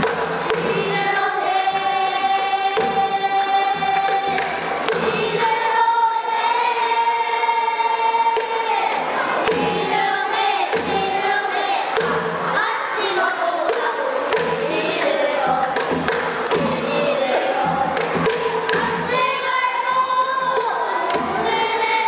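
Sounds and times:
barrel drum strokes: 0.0 - 6.9
children singing in unison: 0.0 - 22.0.

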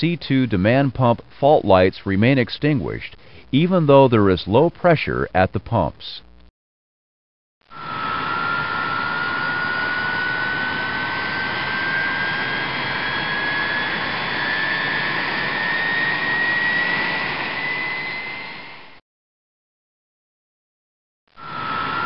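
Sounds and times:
jet engine spooling up: 7.7 - 19.0, 21.4 - 22.0.

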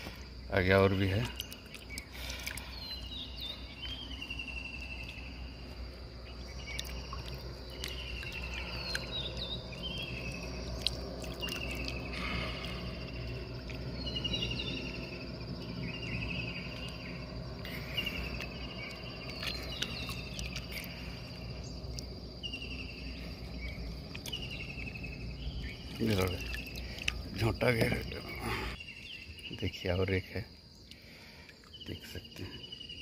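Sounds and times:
high insect drone: 0.0 - 33.0
insects trilling: 0.0 - 33.0
low rumble: 2.9 - 28.8.

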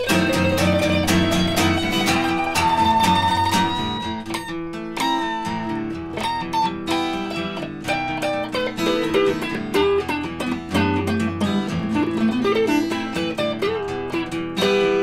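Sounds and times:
acoustic and electric guitars playing: 0.0 - 15.0.

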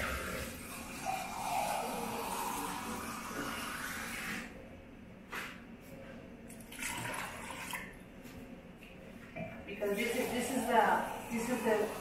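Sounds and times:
water pouring into a pot: 0.0 - 4.5, 6.6 - 8.0.

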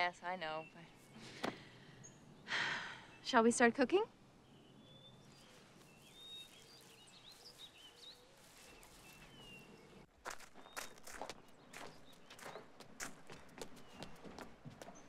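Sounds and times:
birds chirping: 0.0 - 15.0
footsteps on gravel: 5.4 - 15.0.

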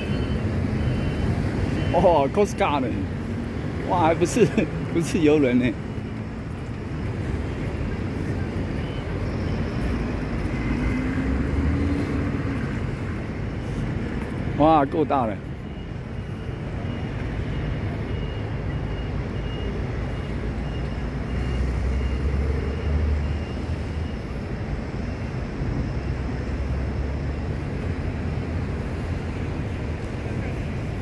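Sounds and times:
faint high beeping tone: 0.0 - 3.1, 14.7 - 24.6
low rumble of city ambience: 0.0 - 31.0.

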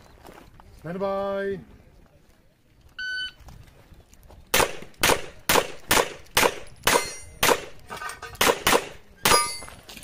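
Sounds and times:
handgun shots: 4.5 - 9.6
metallic ringing of steel targets: 6.4 - 9.9.

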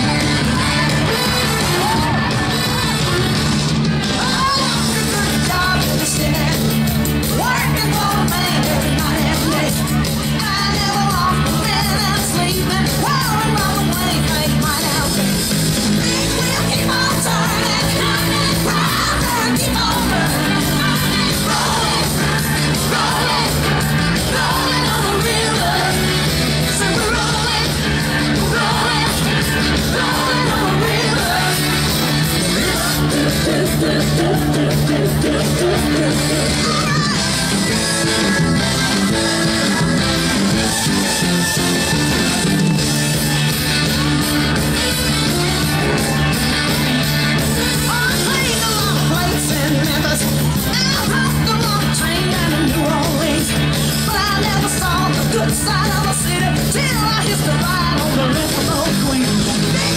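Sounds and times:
pop song with singing: 0.0 - 44.4, 45.0 - 59.9
crowd shouting and yelling: 0.0 - 59.9.

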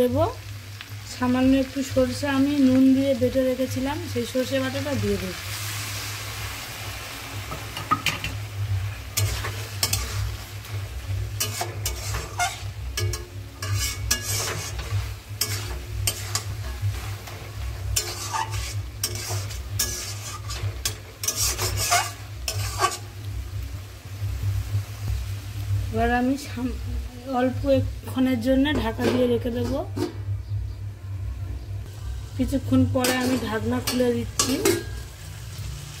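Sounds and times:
food sizzling: 0.0 - 31.0, 31.8 - 36.0
metal spatula scraping pan: 9.2 - 10.5, 11.2 - 23.2, 33.0 - 35.1.

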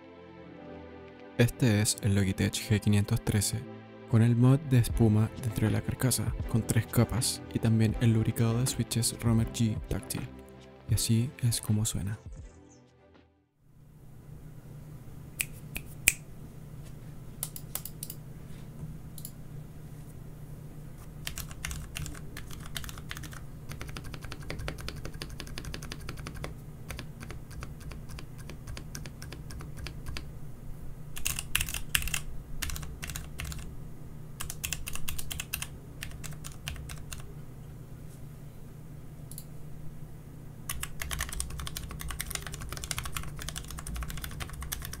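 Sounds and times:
finger snap: 15.4 - 16.3
typing on mechanical keyboard: 21.2 - 30.2, 31.2 - 33.7, 34.4 - 37.3, 40.7 - 45.0.

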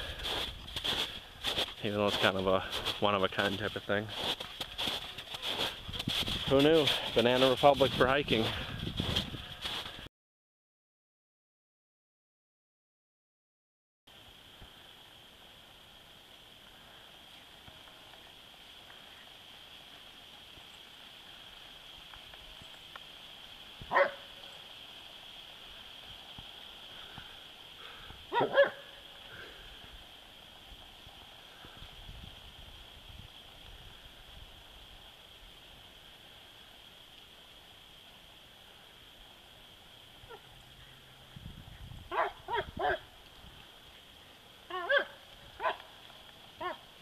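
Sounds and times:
dog barking: 23.9 - 24.3, 28.3 - 29.0, 42.1 - 43.1, 44.7 - 45.8, 46.6 - 46.8.

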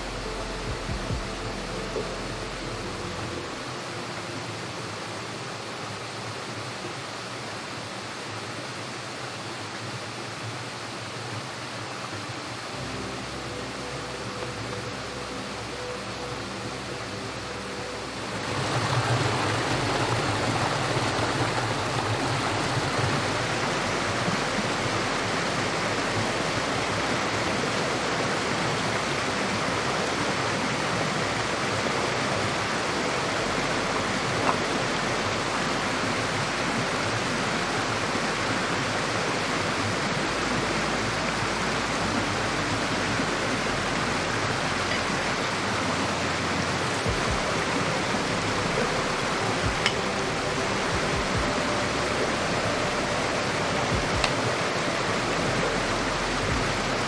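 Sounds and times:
water rushing: 0.0 - 57.0.

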